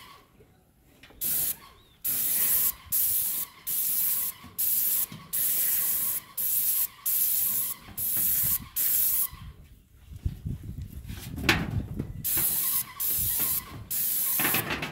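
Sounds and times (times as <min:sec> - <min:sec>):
paint spray gun bursts: 0:01.2 - 0:09.3, 0:12.3 - 0:14.6.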